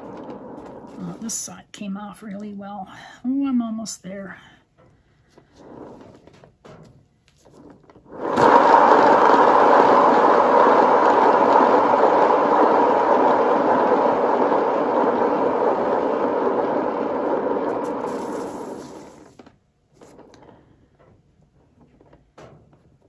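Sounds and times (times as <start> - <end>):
turntable rolling noise: 0.0 - 1.4, 5.5 - 6.4, 7.4 - 20.5.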